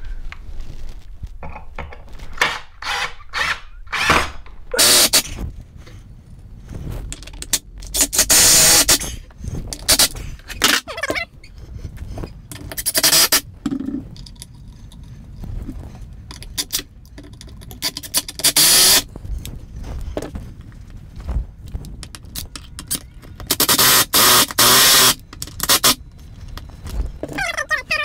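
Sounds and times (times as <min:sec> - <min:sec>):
cordless drill driving screws: 0:02.4 - 0:05.3, 0:08.0 - 0:09.1, 0:12.8 - 0:13.4, 0:18.4 - 0:19.0, 0:23.5 - 0:26.0.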